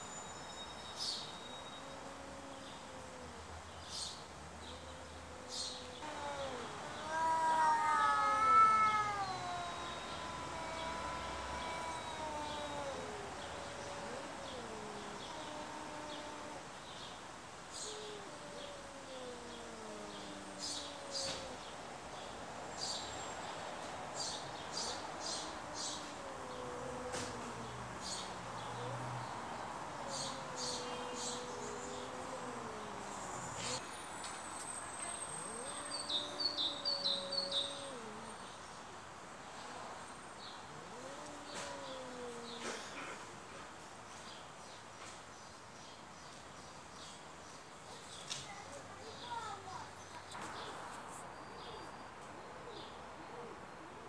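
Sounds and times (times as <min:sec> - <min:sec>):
cats yowling: 0:01.2 - 0:03.6, 0:04.6 - 0:16.7, 0:17.7 - 0:21.7, 0:24.2 - 0:33.8, 0:35.0 - 0:38.5, 0:40.4 - 0:43.2.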